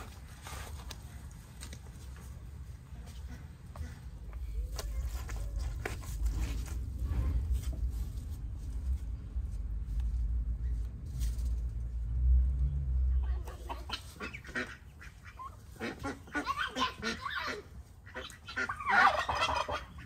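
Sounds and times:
ducks and chickens calling: 0:02.6 - 0:04.7, 0:13.2 - 0:20.0
low rumble: 0:04.2 - 0:13.4
geese honking: 0:13.5 - 0:20.0.

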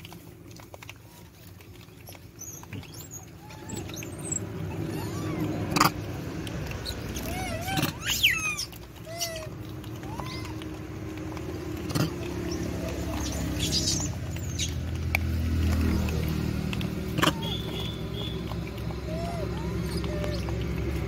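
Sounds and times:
monkey coo calls: 0:02.1 - 0:06.0, 0:06.7 - 0:10.8, 0:11.8 - 0:14.8, 0:17.1 - 0:20.8
high squeaks: 0:06.8 - 0:10.5.

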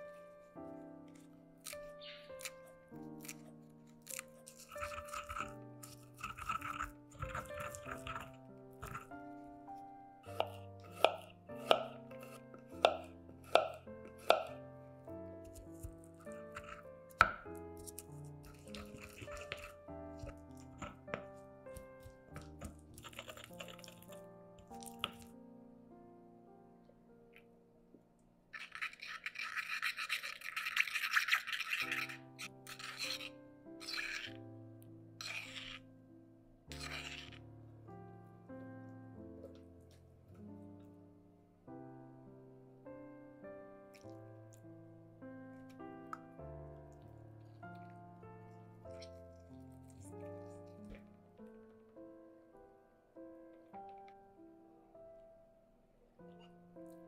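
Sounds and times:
soft background music: 0:00.0 - 0:29.4, 0:30.0 - 0:57.0
knife slicing on wooden board: 0:02.4 - 0:09.1, 0:10.3 - 0:14.5, 0:15.4 - 0:24.2, 0:28.6 - 0:34.4, 0:35.2 - 0:35.8, 0:36.7 - 0:37.4
spoon scraping stone mortar: 0:04.0 - 0:09.1, 0:15.5 - 0:21.2, 0:21.8 - 0:25.2, 0:28.6 - 0:34.4, 0:35.2 - 0:35.8, 0:36.7 - 0:37.4.

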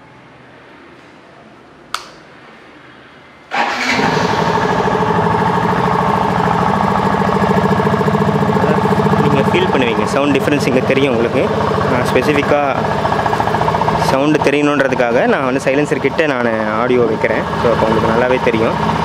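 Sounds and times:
sharp click: 0:01.9 - 0:02.2
motorcycle engine idling: 0:03.6 - 0:19.0.

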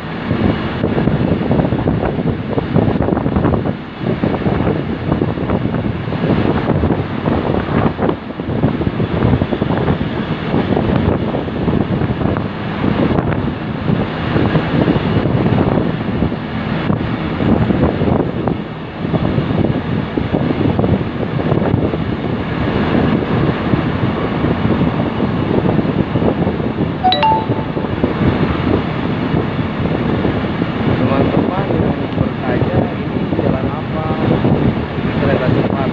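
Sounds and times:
rail vehicle rumbling on track: 0:00.0 - 0:27.0, 0:28.0 - 0:35.9
wind buffeting microphone: 0:00.0 - 0:27.0, 0:27.8 - 0:35.9
high beeping tone: 0:27.0 - 0:28.2.

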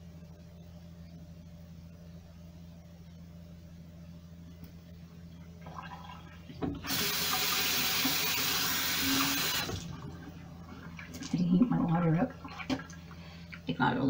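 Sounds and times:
low steady hum: 0:00.0 - 0:14.0
water running into basin: 0:05.6 - 0:13.7.

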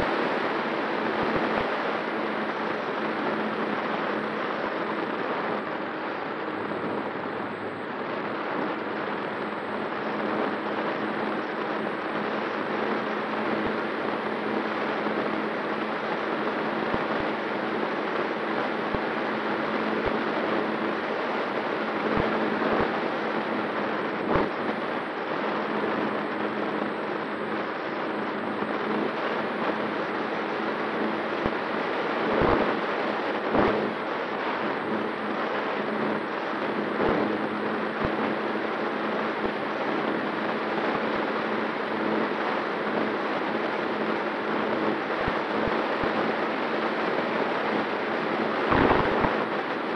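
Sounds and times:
electric motor and propeller hum: 0:00.0 - 0:49.9
wind rushing over camera: 0:00.0 - 0:49.9
wind thumps: 0:48.7 - 0:49.5.

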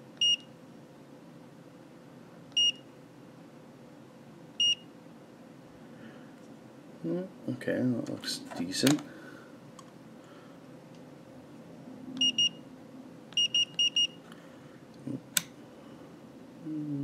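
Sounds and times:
multimeter beeping: 0:02.6 - 0:02.8, 0:04.6 - 0:04.9, 0:12.2 - 0:12.6, 0:13.4 - 0:14.2.

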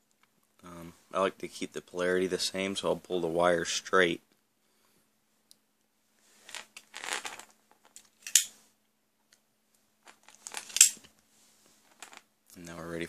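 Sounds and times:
wire rustling and scraping: 0:06.2 - 0:08.7, 0:10.0 - 0:12.3.

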